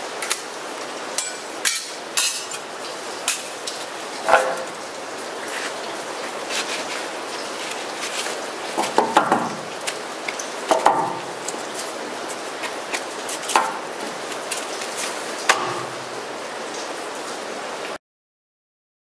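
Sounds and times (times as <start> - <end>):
metal panels clinking and scraping: 1.2 - 4.9, 10.7 - 16.3.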